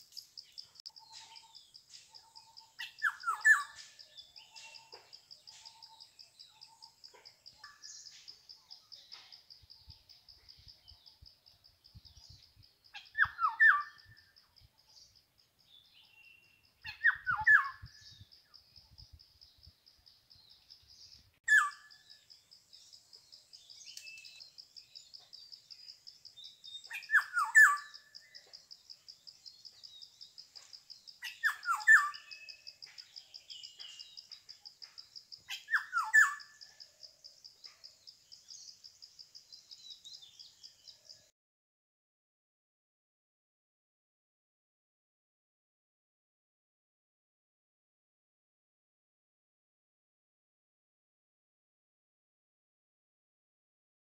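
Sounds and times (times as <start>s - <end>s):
bird calling: 0.0s - 8.2s, 26.8s - 28.4s, 31.2s - 32.6s, 35.5s - 36.6s.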